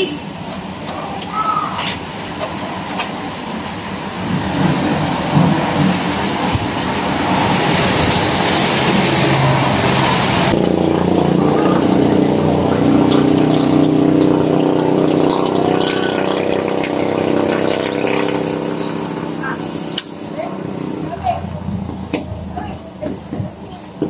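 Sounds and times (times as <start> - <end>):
tyres hissing on wet road: 0.0 - 17.7
vehicle engine humming: 0.0 - 24.0.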